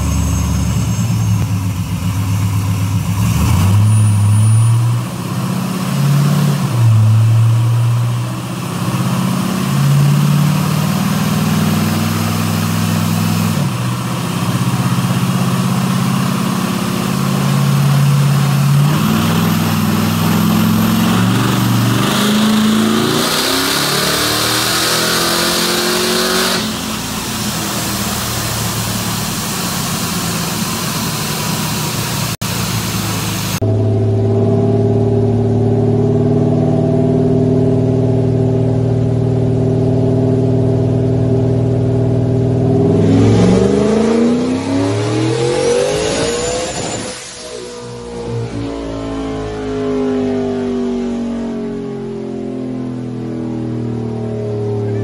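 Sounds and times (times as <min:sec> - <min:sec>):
pickup engine revving on dynamometer: 0:03.2 - 0:33.6, 0:42.6 - 0:51.8.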